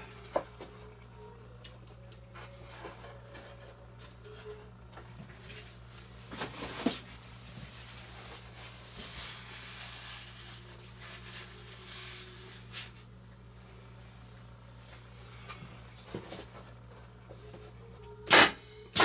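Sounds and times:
low steady hum: 0.0s - 19.0s
nail gun firing: 18.3s - 19.0s.

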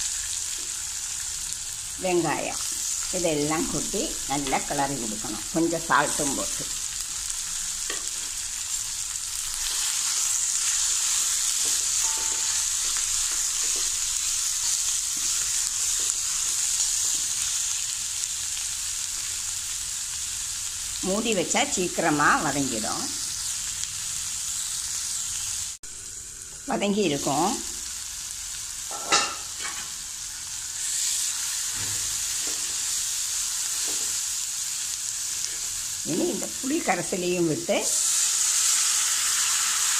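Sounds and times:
vegetables sizzling in hot oil: 0.0s - 39.9s
spoon stirring and scraping: 9.6s - 16.4s.

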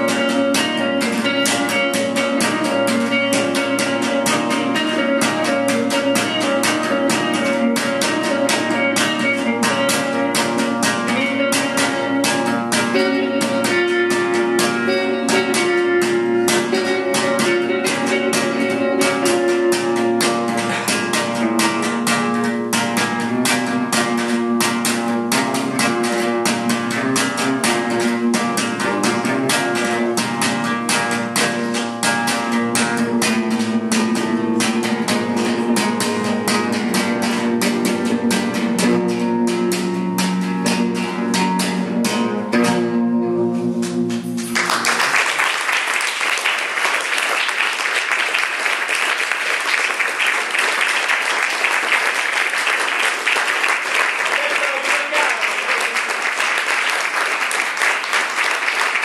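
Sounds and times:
guitar strumming: 0.0s - 59.0s
audience applause: 44.4s - 59.0s.

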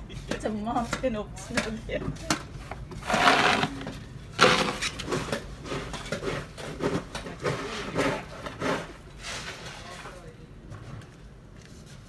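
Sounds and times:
snow shovel scraping pavement: 3.0s - 3.8s.

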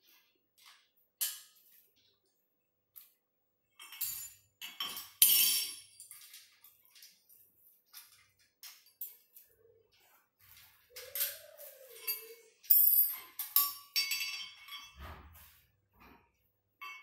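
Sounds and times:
metal parts clinking and rattling: 3.8s - 9.4s, 11.0s - 15.1s.

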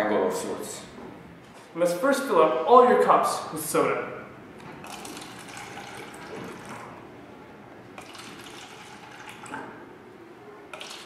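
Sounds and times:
soda pouring into cups: 4.8s - 7.0s, 8.0s - 9.7s, 10.7s - 11.0s.

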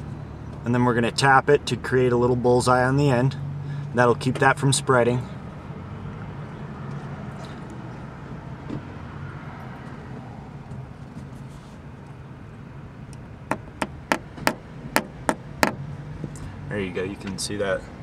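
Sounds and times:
tool tapping on glass: 13.5s - 15.8s.

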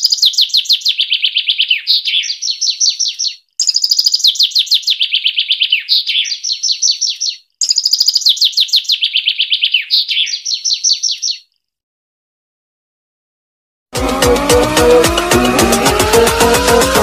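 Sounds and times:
songbird singing: 0.0s - 11.8s.

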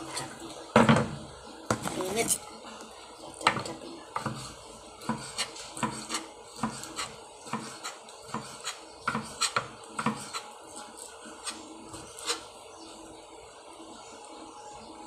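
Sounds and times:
knife scraping board: 4.2s - 12.5s
knife chopping on cutting board: 5.0s - 10.4s.

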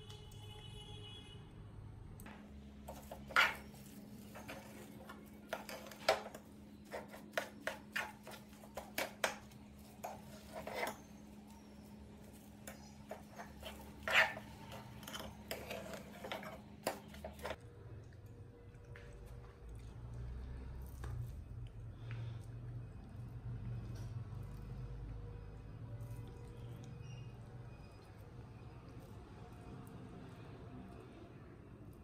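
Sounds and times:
metal spoon scraping frying pan: 2.9s - 11.7s, 12.6s - 17.6s.

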